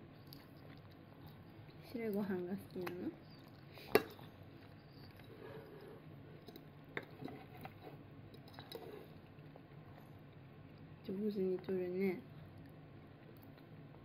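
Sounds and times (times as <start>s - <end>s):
child chewing: 0.0s - 1.8s.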